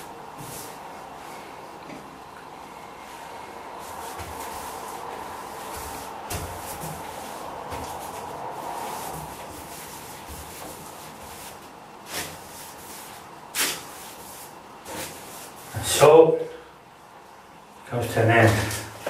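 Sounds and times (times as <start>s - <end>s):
paintbrush rubbing on wood: 3.8s - 15.7s.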